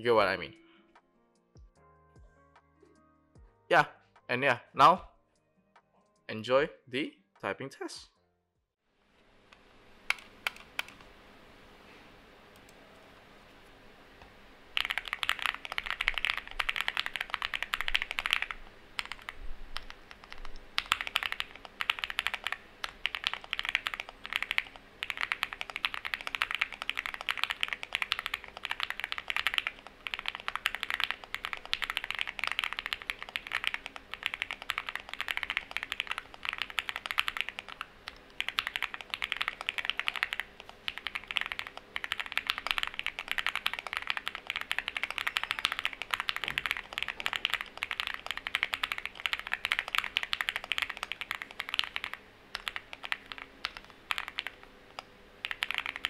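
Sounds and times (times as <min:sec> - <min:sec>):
mechanical keyboard typing: 0:10.1 - 0:11.0, 0:14.8 - 0:56.0.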